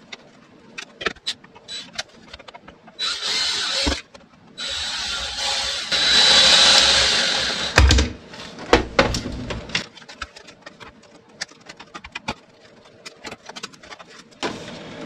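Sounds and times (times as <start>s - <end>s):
cordless drill whirring: 3.0s - 4.0s, 4.6s - 7.8s.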